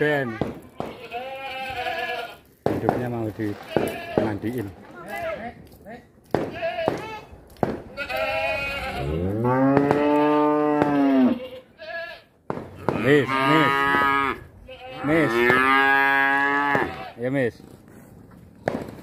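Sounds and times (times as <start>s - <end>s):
cattle mooing: 8.0s - 11.5s, 12.9s - 17.1s.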